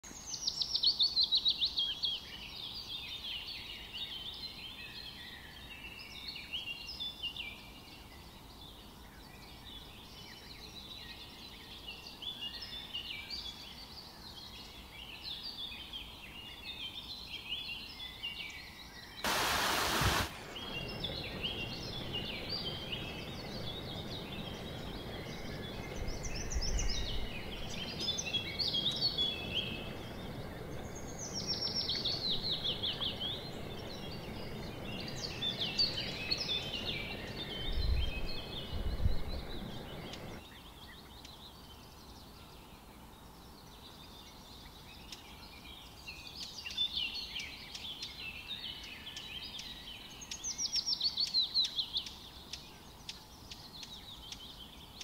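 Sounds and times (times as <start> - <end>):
songbirds singing and chirping: 0.0 - 55.0
burst of hiss: 19.2 - 21.4.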